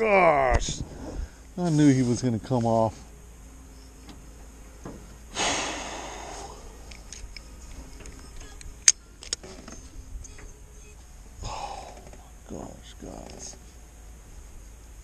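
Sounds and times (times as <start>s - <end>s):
breathy exhale: 5.3s - 6.7s, 11.4s - 12.0s.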